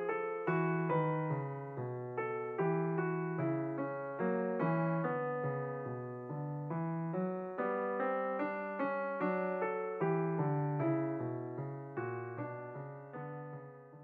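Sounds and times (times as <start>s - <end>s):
piano notes and chords: 0.0s - 14.0s.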